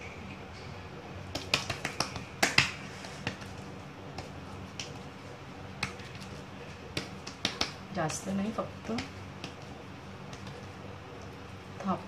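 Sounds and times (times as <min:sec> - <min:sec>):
wet hands patting dough: 0:01.2 - 0:12.0.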